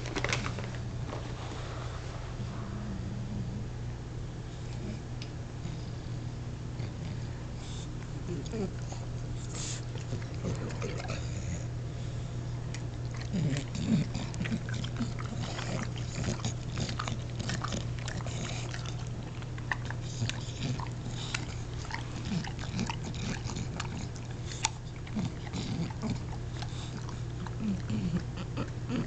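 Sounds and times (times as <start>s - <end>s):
steady low hum: 0.0s - 29.0s
dog grunting: 6.8s - 11.8s, 13.0s - 29.0s
dog chewing and licking: 7.8s - 11.7s, 12.6s - 29.0s.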